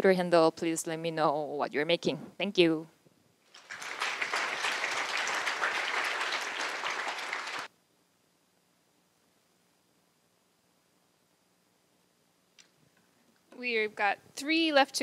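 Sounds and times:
audience applauding: 3.5s - 7.7s.

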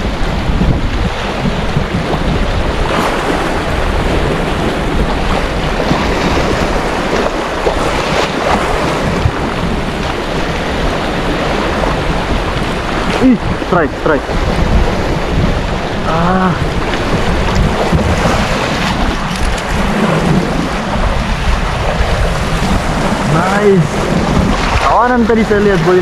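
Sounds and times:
sea waves breaking over rocks: 0.0s - 26.0s
wind buffeting microphone: 0.0s - 26.0s.

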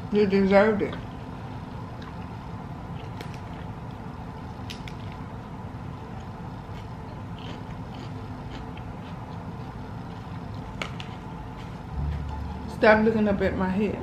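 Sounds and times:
steady low hum: 0.0s - 14.0s
chewing: 6.2s - 12.2s.

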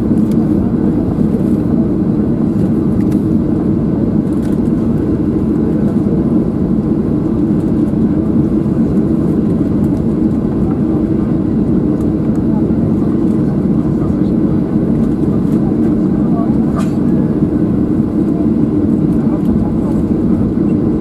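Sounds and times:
jet engines idling: 0.0s - 21.0s
low cabin rumble: 0.0s - 21.0s.

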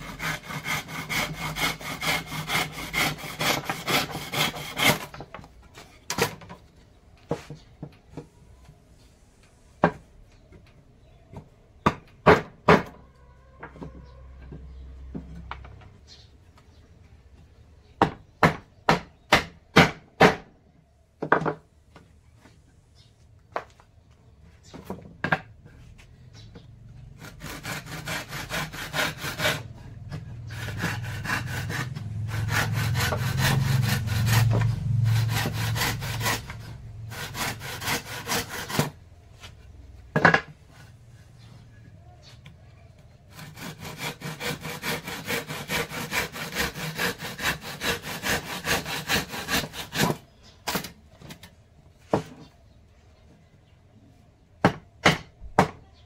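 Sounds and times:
hand saw cutting wood: 0.0s - 5.3s, 27.1s - 39.0s, 43.3s - 51.0s.

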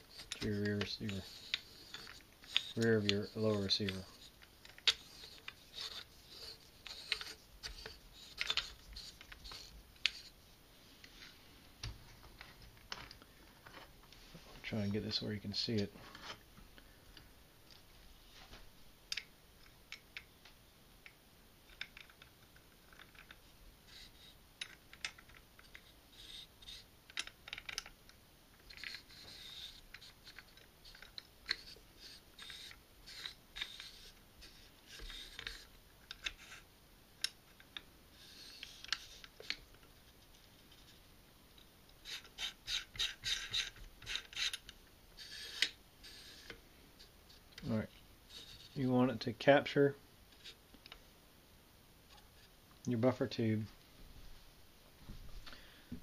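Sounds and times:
metal parts clicking and scraping: 0.0s - 10.4s, 21.7s - 36.6s, 37.2s - 41.0s, 42.0s - 48.9s.

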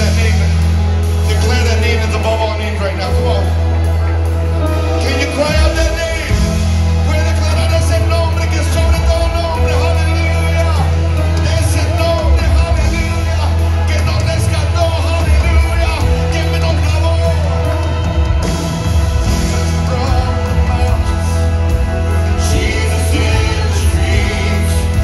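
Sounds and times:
band playing worship music: 0.0s - 25.0s
heavy bass: 0.0s - 25.0s
group of people singing: 19.3s - 25.0s.

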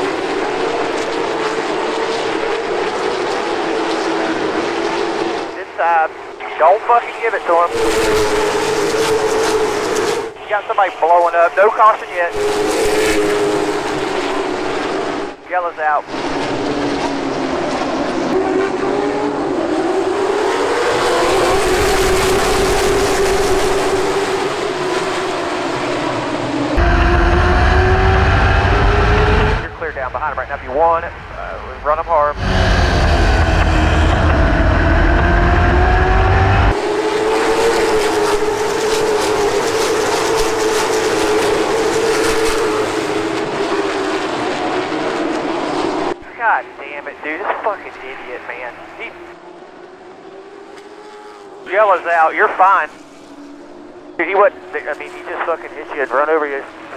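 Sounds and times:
race car engine: 0.0s - 56.9s
road and wind noise: 6.1s - 11.1s, 12.3s - 15.4s, 16.0s - 46.3s.

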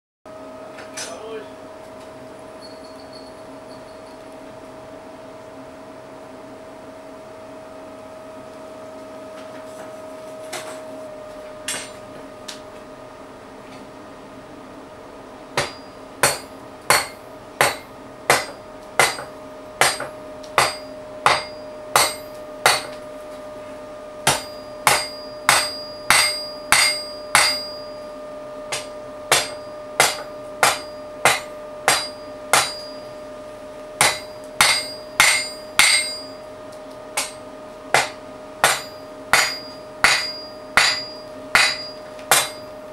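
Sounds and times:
steady hum: 0.3s - 42.9s
hammer striking metal on anvil: 11.7s - 12.0s, 15.6s - 23.0s, 24.2s - 28.0s, 28.7s - 33.1s, 34.0s - 36.4s, 37.2s - 42.8s.

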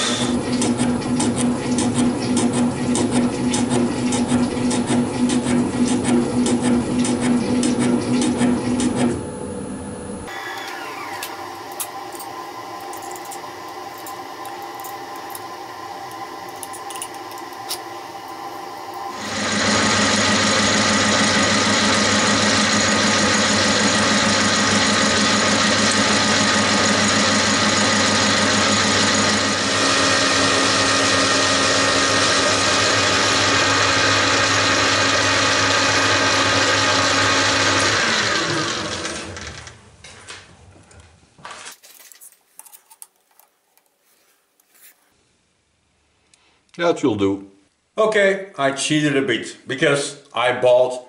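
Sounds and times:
metal lathe whining: 0.0s - 9.0s, 10.3s - 39.7s.

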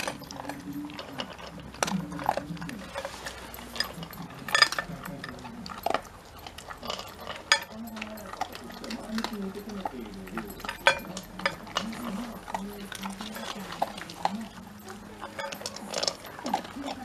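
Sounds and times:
dog crunching kibble: 0.0s - 17.0s
teeth clicking against bowl: 0.0s - 17.0s.

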